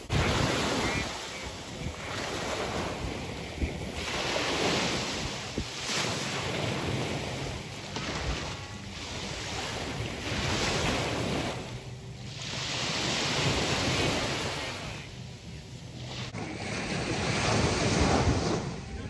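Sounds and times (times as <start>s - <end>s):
wind rumbling on microphone: 0.0s - 11.9s
small waves washing in: 0.0s - 19.0s.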